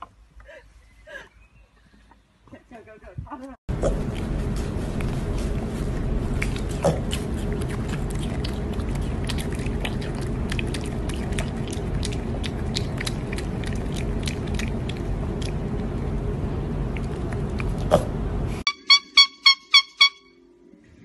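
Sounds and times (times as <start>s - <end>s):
piglet chewing and smacking: 3.7s - 18.3s.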